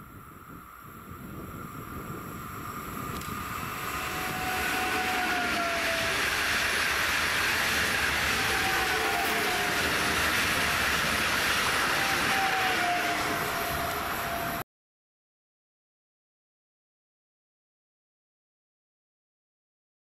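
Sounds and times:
faint train whine: 0.0s - 14.6s
train wheels rumbling on rail: 0.2s - 14.6s.

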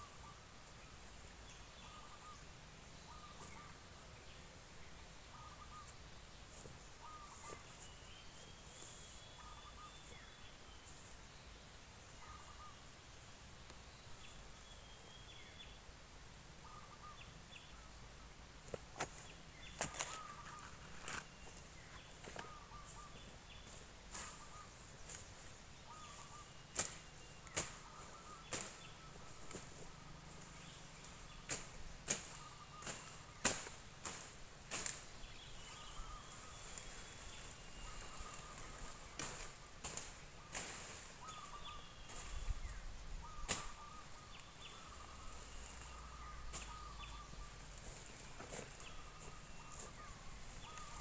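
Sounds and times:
faint short bird calls: 1.8s - 4.0s, 5.2s - 6.0s, 6.6s - 11.0s, 12.1s - 12.9s, 16.6s - 18.0s, 19.0s - 51.0s
sickle cutting cracks: 26.7s - 27.8s, 31.5s - 35.0s, 43.5s - 43.8s.

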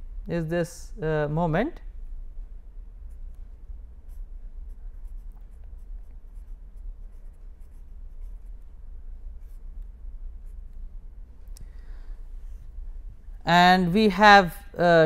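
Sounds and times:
low hum: 0.0s - 15.0s
pen scratching on paper: 4.0s - 8.8s, 9.4s - 9.6s.

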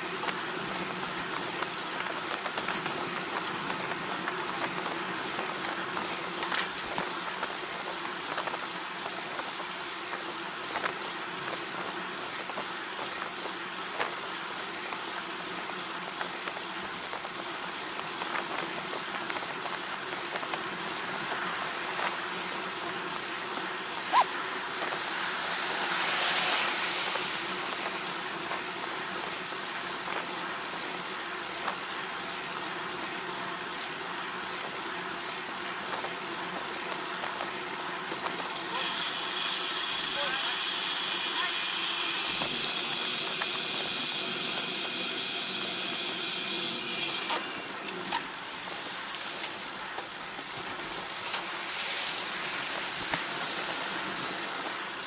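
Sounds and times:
vehicle running noise: 0.0s - 55.0s
hiss: 24.1s - 30.0s, 38.6s - 47.8s, 48.4s - 55.0s.

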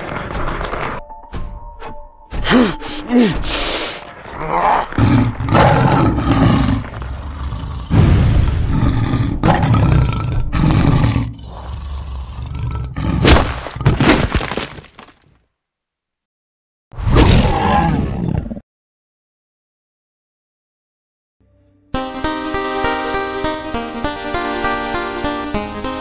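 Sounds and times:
creature growling and roaring: 4.3s - 13.4s, 17.0s - 18.6s.

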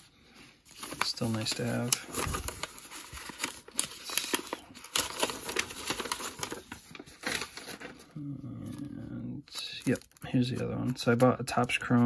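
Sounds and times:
paper envelope rustling: 0.0s - 11.7s.

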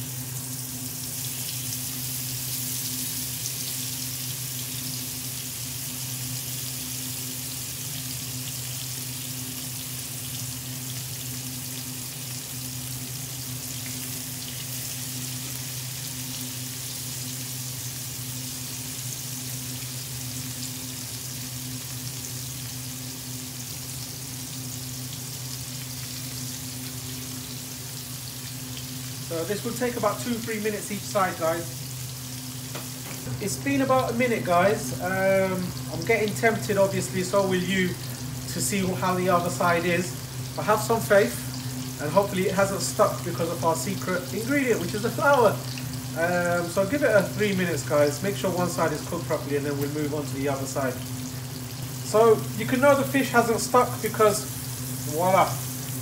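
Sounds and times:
fish sizzling in oil: 0.0s - 56.0s.

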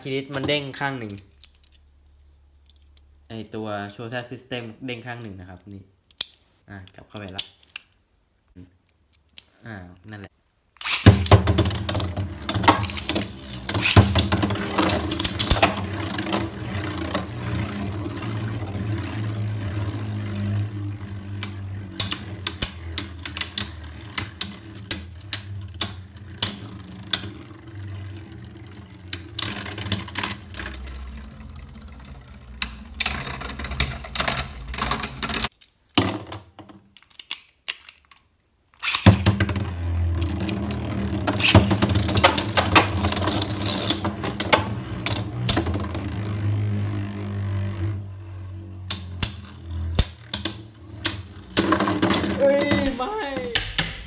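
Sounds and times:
spinning tops whirring: 10.8s - 35.5s, 38.8s - 54.0s.

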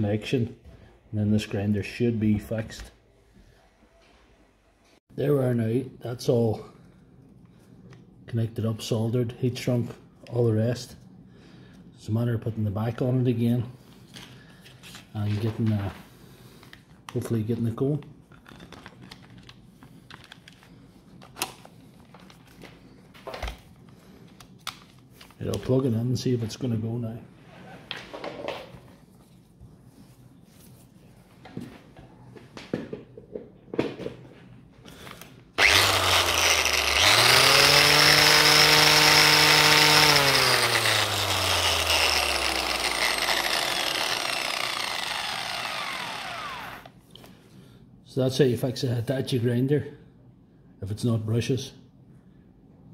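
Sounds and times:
angle grinder motor whine: 35.6s - 46.9s.

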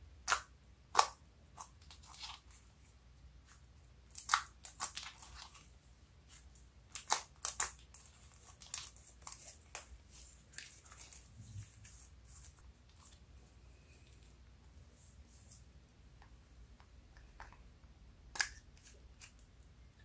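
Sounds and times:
sticky slime popping and crackling: 0.2s - 2.4s, 4.1s - 5.6s, 6.9s - 9.9s.

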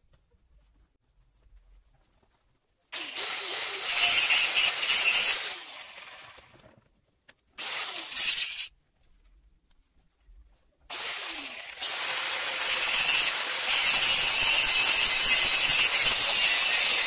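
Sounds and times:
angle grinder cutting steel: 3.0s - 6.5s, 7.6s - 8.7s, 10.9s - 17.0s.

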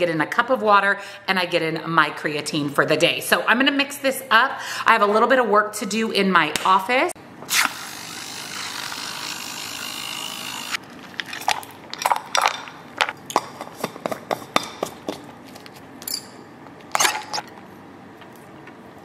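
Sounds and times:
battery frother buzzing: 7.5s - 10.8s.

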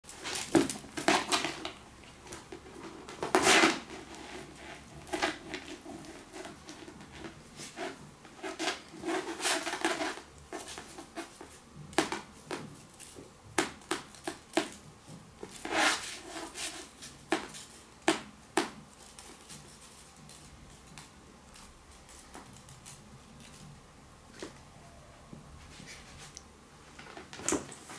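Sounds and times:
kitten paws scuffing floor: 13.9s - 23.7s, 25.5s - 27.9s.

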